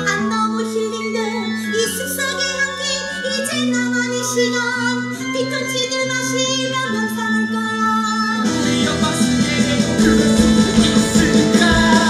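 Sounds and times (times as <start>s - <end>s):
band accompaniment: 8.5s - 12.0s
woman singing: 10.0s - 12.0s.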